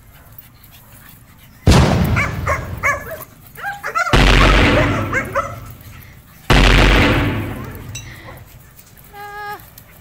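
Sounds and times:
dogs yipping and barking: 0:00.0 - 0:06.5
loud blasts of noise: 0:04.2 - 0:05.7, 0:06.5 - 0:08.0.

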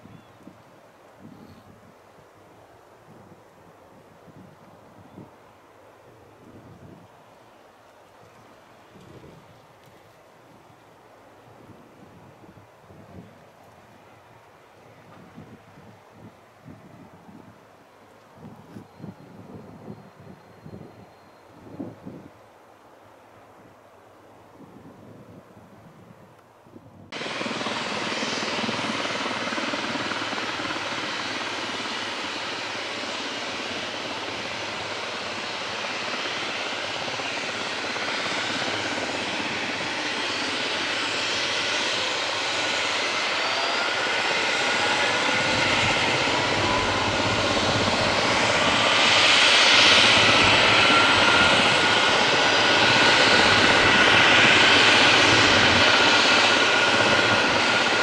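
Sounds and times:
helicopter engines running up: 0:27.1 - 0:58.0
turbine whine: 0:27.1 - 0:58.0.

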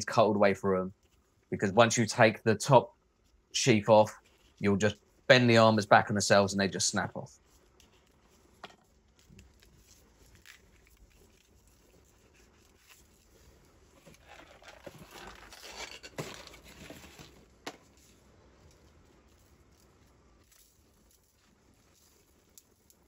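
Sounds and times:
rustling scraping: 0:07.3 - 0:22.4.

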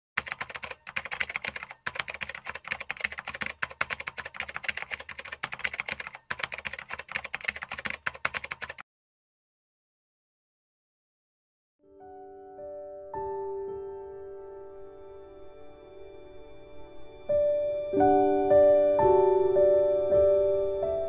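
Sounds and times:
keyboard typing clicks: 0:00.2 - 0:08.8.

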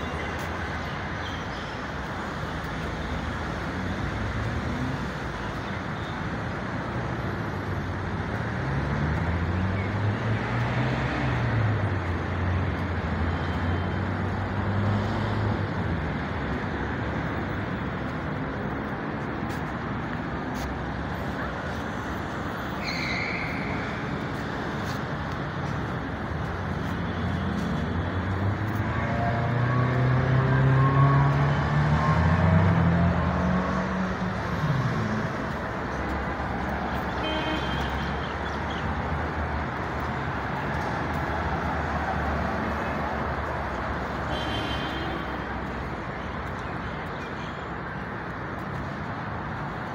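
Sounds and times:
road traffic noise: 0:00.0 - 0:49.9
vehicle engines passing: 0:00.0 - 0:49.9
high squeal: 0:22.8 - 0:23.8.

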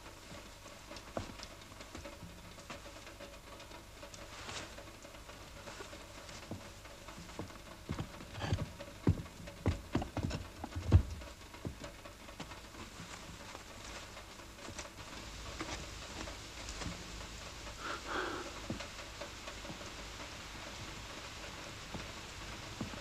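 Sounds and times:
rain pattering: 0:00.0 - 0:23.0
footsteps: 0:07.4 - 0:17.1.

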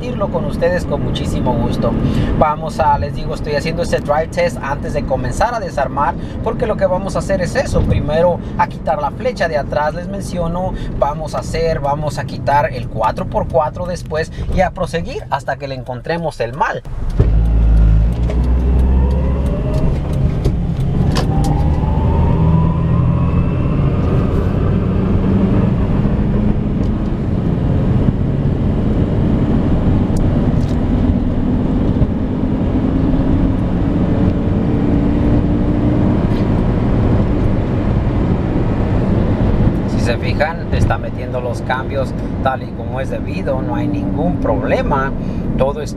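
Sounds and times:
car engine and road rumble: 0:00.0 - 0:45.9
faint rising whine: 0:16.9 - 0:27.6.

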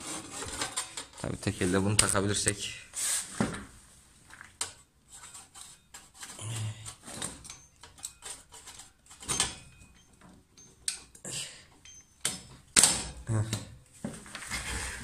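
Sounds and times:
metal pulley clicking and scraping: 0:04.7 - 0:12.5.

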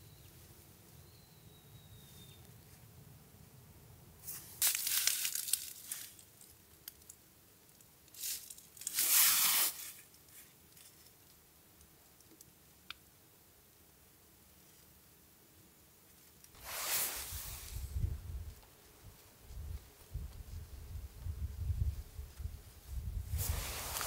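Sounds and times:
material rustling and crinkling: 0:04.3 - 0:07.2, 0:23.4 - 0:24.0.

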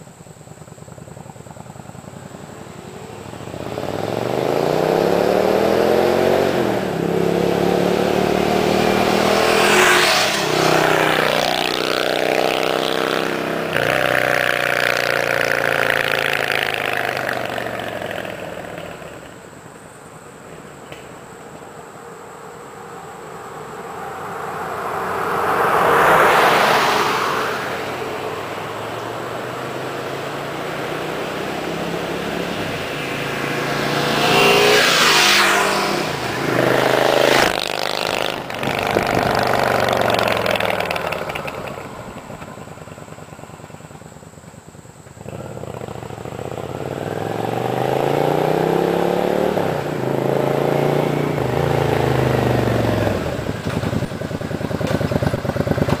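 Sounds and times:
motorcycles riding past: 0:00.3 - 0:56.0.

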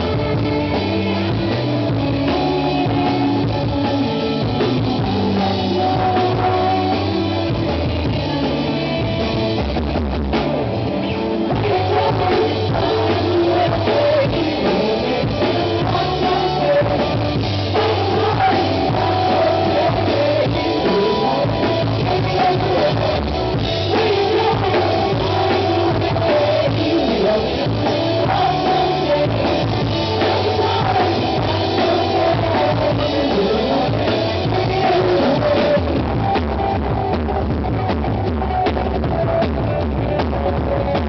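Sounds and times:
drum kit: 0:00.0 - 0:41.0
electric guitar: 0:00.0 - 0:41.0
woman singing: 0:04.9 - 0:09.2, 0:11.5 - 0:36.1.

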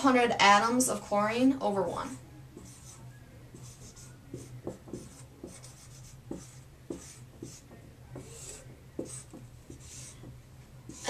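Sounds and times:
faint low hum: 0:00.0 - 0:11.0
marker writing on a whiteboard: 0:02.0 - 0:11.0
marker tapping on board: 0:02.6 - 0:11.0.

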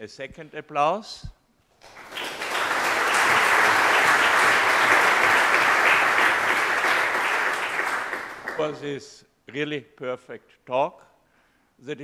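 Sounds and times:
audience applauding: 0:01.8 - 0:08.8.

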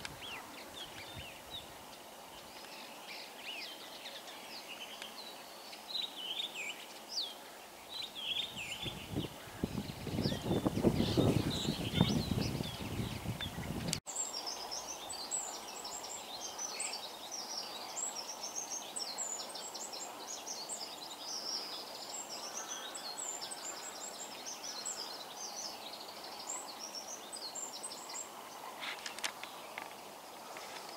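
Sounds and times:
background noise: 0:00.0 - 0:30.9
starling singing: 0:08.4 - 0:13.9.

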